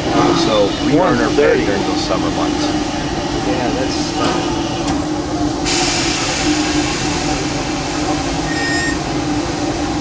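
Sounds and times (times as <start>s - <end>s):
locomotive mechanical rumble: 0.0s - 10.0s
steam hissing: 0.0s - 10.0s
high squeal: 8.4s - 9.0s.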